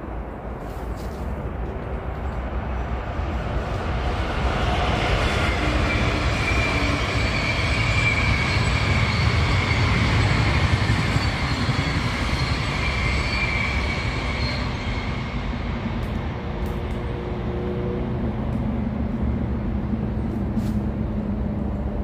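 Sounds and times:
train passing: 0.0s - 22.0s
high squealing tones: 5.7s - 15.7s.

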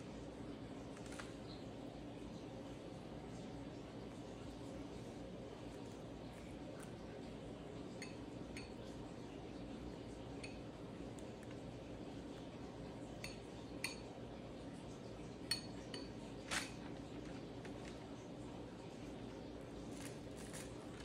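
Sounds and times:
metal spoon clinking ceramic bowl: 7.9s - 8.9s, 13.2s - 14.1s, 15.5s - 16.3s.

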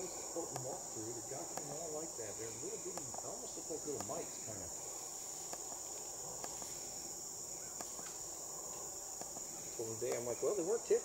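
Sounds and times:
insects chorus: 0.0s - 11.0s
faint clicks: 2.9s - 3.3s, 4.0s - 4.2s, 5.4s - 6.7s.

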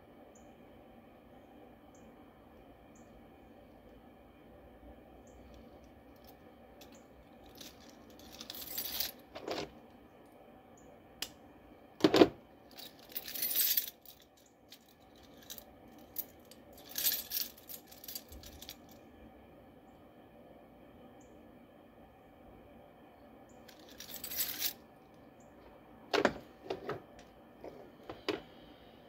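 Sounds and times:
metal tools clinking: 6.8s - 9.7s, 12.8s - 18.8s, 23.7s - 24.8s.

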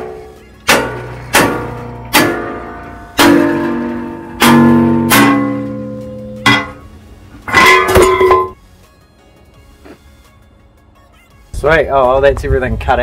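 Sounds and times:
hammer on steel plate: 0.0s - 8.6s
metal strip clanging: 7.5s - 8.6s.

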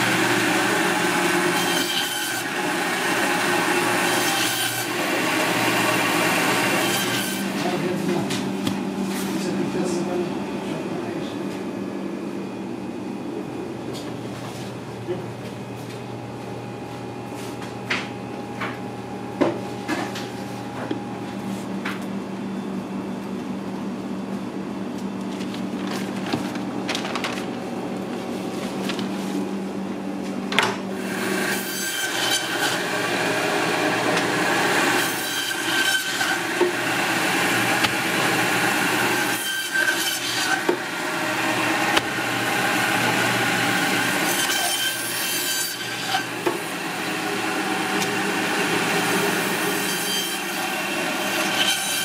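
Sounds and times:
bandsaw cutting through bone: 0.0s - 7.6s, 31.1s - 46.6s, 47.3s - 52.0s
low machine hum: 7.4s - 31.3s.

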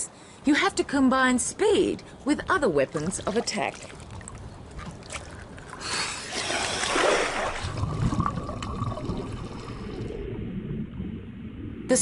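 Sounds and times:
low rumble: 7.6s - 12.0s.

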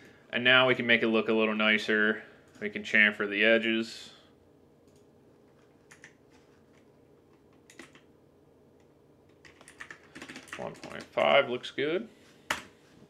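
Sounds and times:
computer keyboard clicks: 5.9s - 6.2s, 7.6s - 8.1s, 9.4s - 11.1s.

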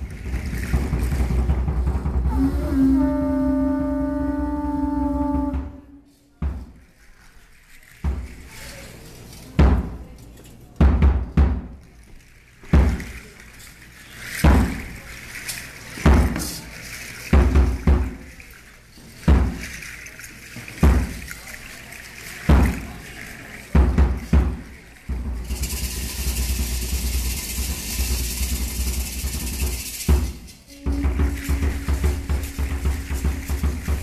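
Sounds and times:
large drum beats: 0.0s - 6.8s, 10.8s - 11.8s, 17.4s - 18.2s, 23.8s - 34.0s
conch shell trumpets blown: 2.2s - 6.3s, 30.7s - 34.0s.

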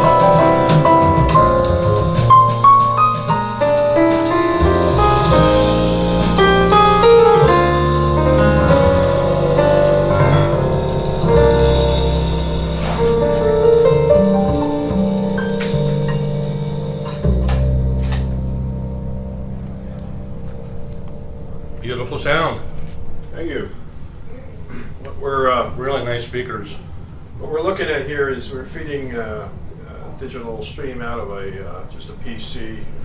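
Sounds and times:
piano music over loudspeakers: 0.0s - 24.2s.

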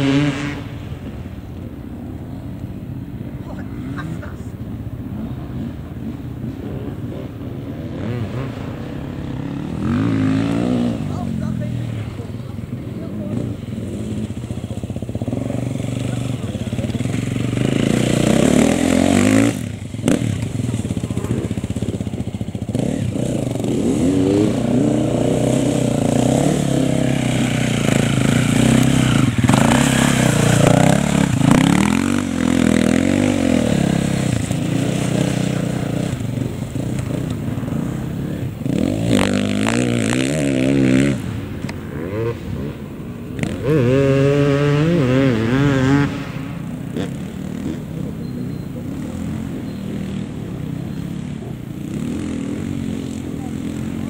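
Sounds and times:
dirt bike engine revving: 0.0s - 1.2s, 3.3s - 54.0s.

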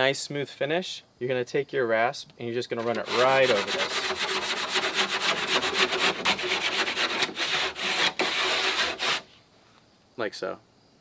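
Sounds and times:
rasp scraping drywall edge: 2.7s - 9.3s.

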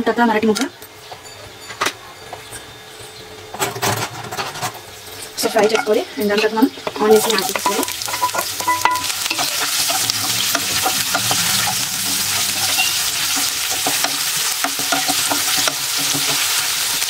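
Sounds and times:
onions sizzling in oil: 5.0s - 17.0s
spatula scraping a pan: 7.0s - 17.0s.

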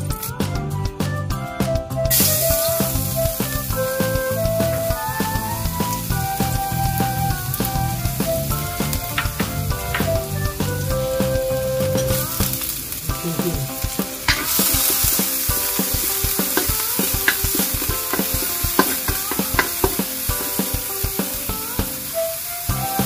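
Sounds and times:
food sizzling in hot oil: 2.1s - 23.0s
spatula scraping a wok: 13.8s - 21.5s.

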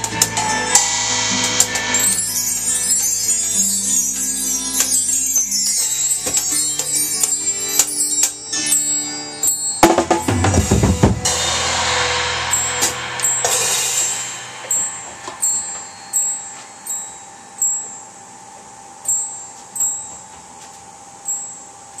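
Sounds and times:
drum kit playing: 0.0s - 3.4s, 9.8s - 17.1s
recorded rock song: 0.0s - 3.8s, 9.8s - 16.6s
crash cymbal ringing: 0.0s - 20.0s.

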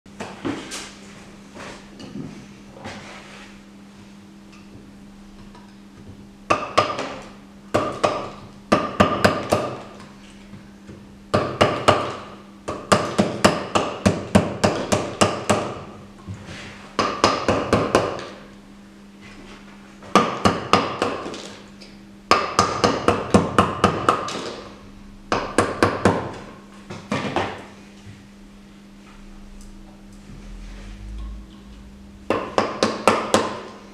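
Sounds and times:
mallet striking chisel: 32.3s - 33.8s.

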